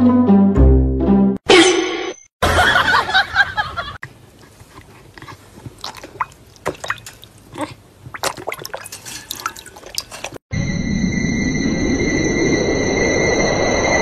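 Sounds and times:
dog lapping water: 4.5 - 10.4.

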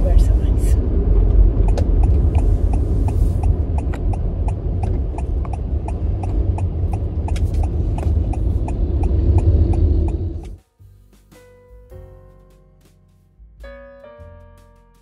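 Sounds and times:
engine and road rumble in car: 0.0 - 10.6
turn signal ticking: 1.2 - 10.6.

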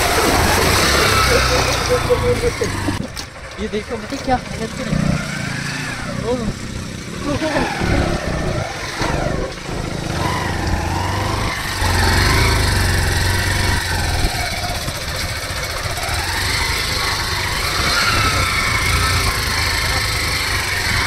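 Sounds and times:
motorcycle engine revving: 0.0 - 21.0.

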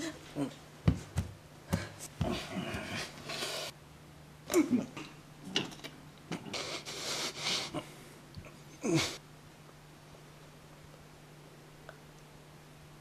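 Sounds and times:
woman breathing hard: 1.7 - 3.7.

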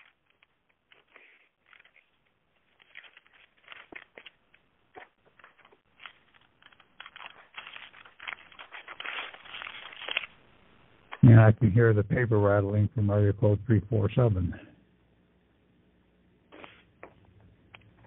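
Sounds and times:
paper rattling over phone line: 5.4 - 10.3.

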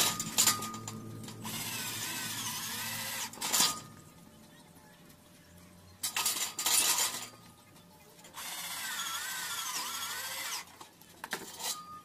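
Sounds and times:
electric drill drilling into metal: 8.4 - 10.7.

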